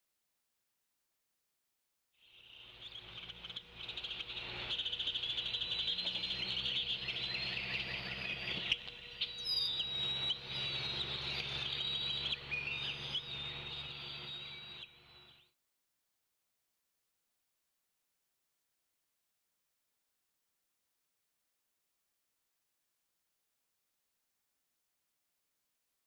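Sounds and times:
birds singing and calling: 2.2s - 15.5s
low steady hum: 2.3s - 15.5s
insect-like shrill trill: 3.4s - 15.5s.

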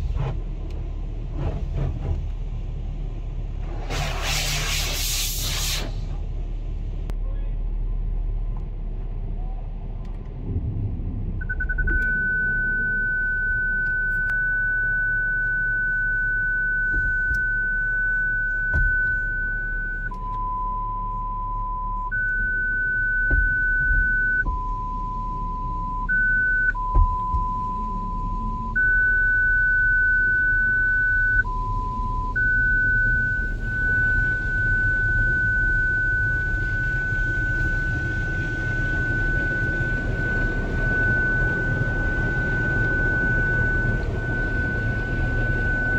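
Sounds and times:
car wash rumble and hiss: 0.0s - 13.4s, 15.9s - 45.9s
parking sensor beeping: 11.4s - 45.9s.

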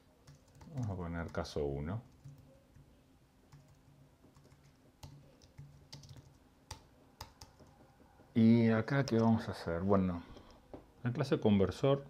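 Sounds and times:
faint keyboard typing: 0.0s - 9.6s.

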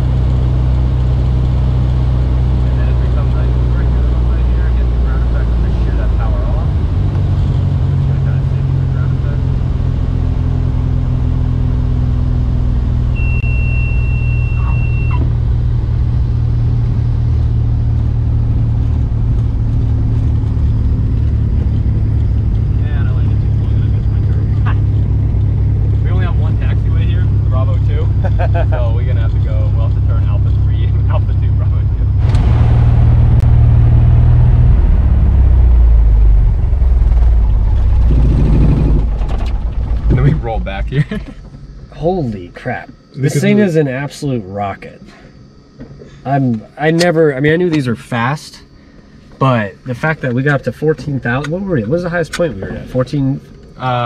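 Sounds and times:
airplane engine and propeller drone: 0.0s - 43.8s
steady high beep: 13.2s - 15.2s.

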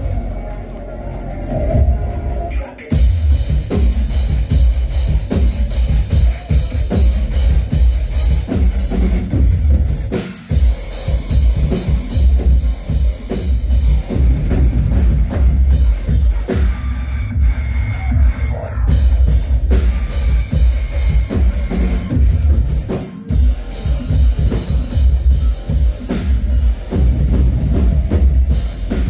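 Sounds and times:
bass guitar: 0.0s - 29.0s
drum kit with heavy kick drum: 0.0s - 29.0s.

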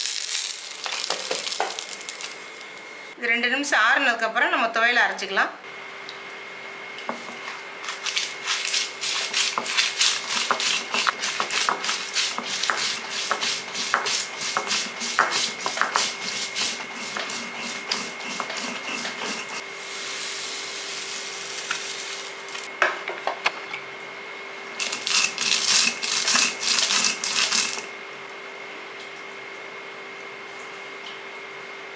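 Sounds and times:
grinding stone scraping: 24.8s - 27.8s.

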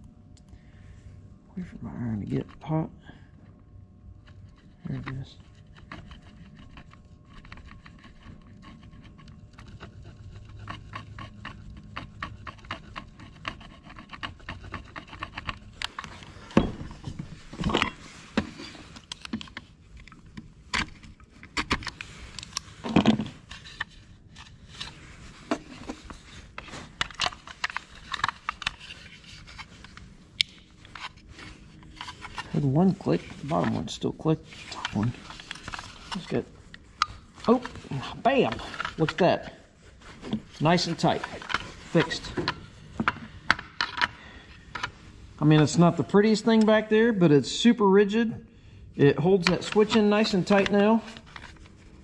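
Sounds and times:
faint low hum: 0.0s - 52.0s
knife scraping hard plastic: 4.4s - 33.8s, 34.5s - 39.2s.

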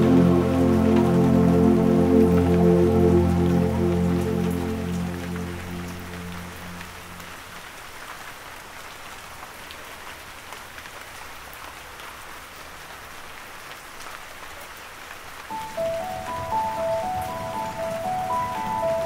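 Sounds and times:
soft music: 0.0s - 7.6s, 15.5s - 19.0s
rain pattering: 0.0s - 19.0s.

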